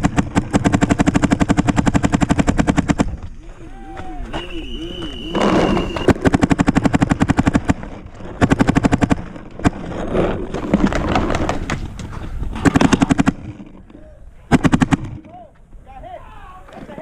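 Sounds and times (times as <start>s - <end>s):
paintball marker firing bursts: 0.0s - 3.3s, 4.4s - 9.8s, 12.6s - 13.6s, 14.5s - 15.3s.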